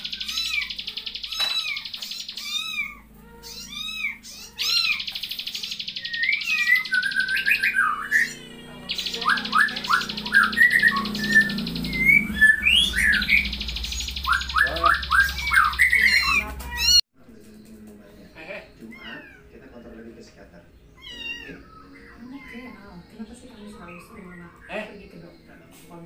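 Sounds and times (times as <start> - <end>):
animal squeaks and chirps: 0.0 - 17.0, 18.7 - 19.5, 20.8 - 25.8
fast buzzing trill: 0.0 - 17.0.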